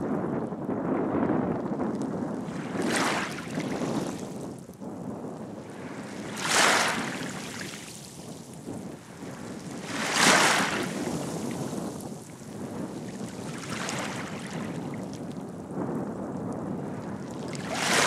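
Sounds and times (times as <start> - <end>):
small waves lapping shoreline: 17.6 - 18.0.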